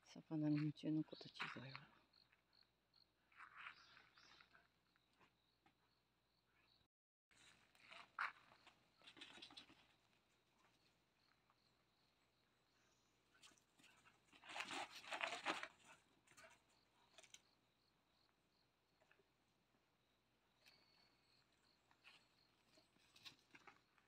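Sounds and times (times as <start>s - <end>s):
puppies scrambling on cloth: 13.4s - 17.4s.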